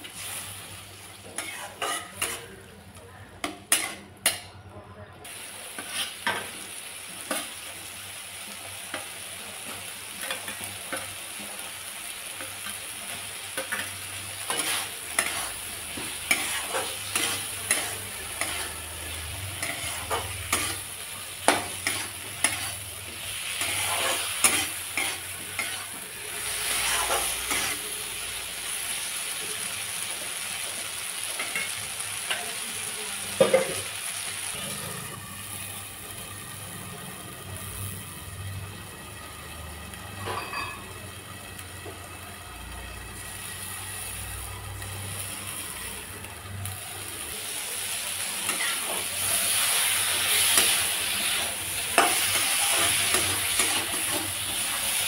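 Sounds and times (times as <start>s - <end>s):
vegetables sizzling: 0.0s - 4.4s, 5.2s - 55.0s
spatula scraping and stirring: 1.2s - 2.6s, 5.8s - 6.5s, 13.6s - 27.8s, 48.4s - 54.7s.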